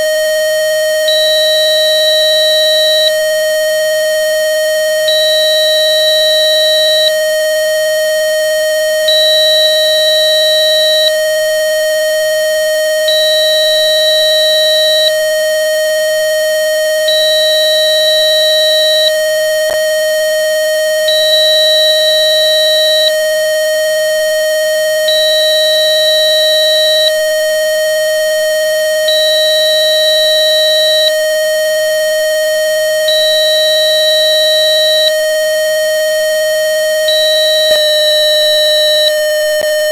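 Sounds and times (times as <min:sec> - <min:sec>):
high beep: 0:37.1 - 0:39.9
steady electronic tone: 0:37.2 - 0:39.9.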